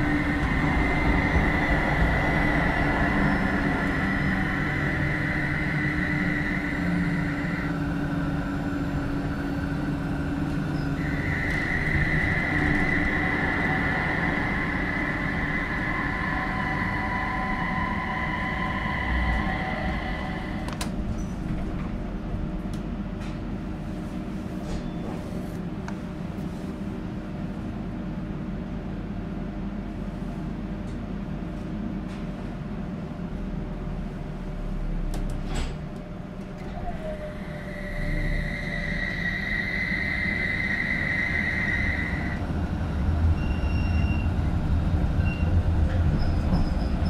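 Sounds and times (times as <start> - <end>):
tram drive high whine: 0.0 - 47.0
tram running: 0.0 - 47.0.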